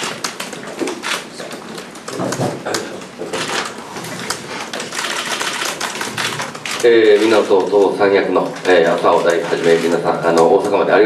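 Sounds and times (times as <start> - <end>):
camera shutters clicking: 2.1 - 10.5.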